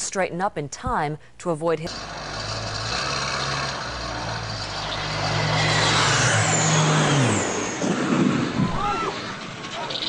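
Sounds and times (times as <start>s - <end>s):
airplane engine drone and whine: 6.0s - 10.0s
crash and explosion: 6.6s - 10.0s.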